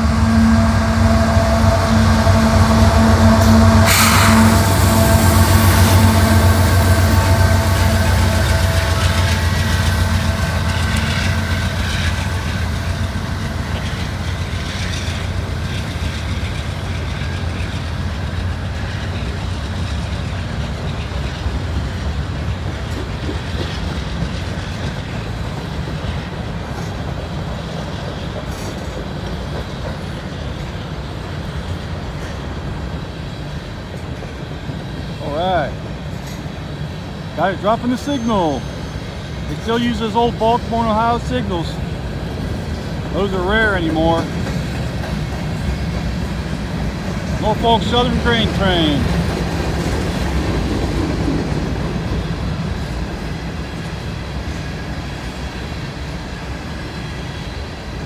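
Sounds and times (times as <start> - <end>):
locomotive engine hum and whine: 0.0 - 58.0
train wheels roaring: 0.0 - 58.0
wheels clacking over rail joints: 2.4 - 33.0, 39.4 - 58.0.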